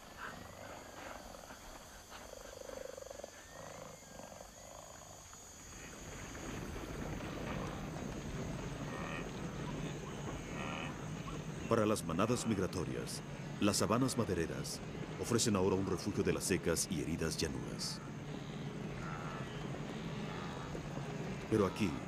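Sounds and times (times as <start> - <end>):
wildebeest herd grunting: 0.0 - 4.4, 8.8 - 11.3, 18.0 - 22.0.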